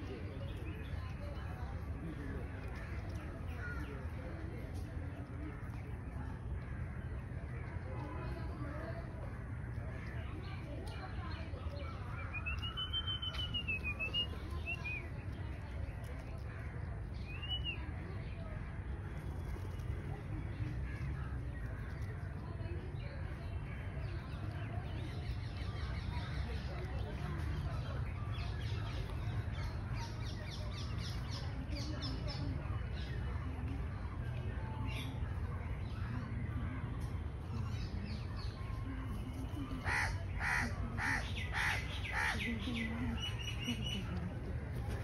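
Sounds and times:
birds chirping and cawing: 0:00.1 - 0:45.0
faint bird chirps: 0:12.2 - 0:15.2
crow cawing: 0:39.8 - 0:42.4.

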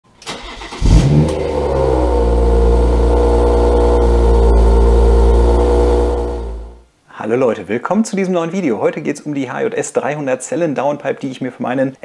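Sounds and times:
car engine starting and idling: 0:00.2 - 0:06.8.

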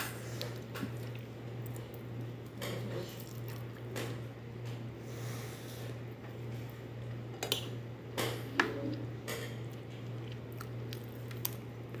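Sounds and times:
person chewing food: 0:00.0 - 0:04.0, 0:09.6 - 0:12.0
steady low hum: 0:00.0 - 0:12.0.

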